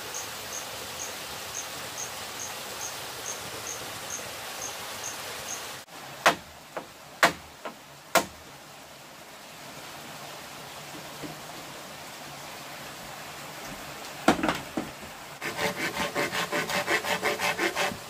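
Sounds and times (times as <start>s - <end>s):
insect chirping: 0.0s - 5.8s
steady hiss: 0.0s - 18.0s
sharp strikes on bamboo: 6.2s - 8.4s.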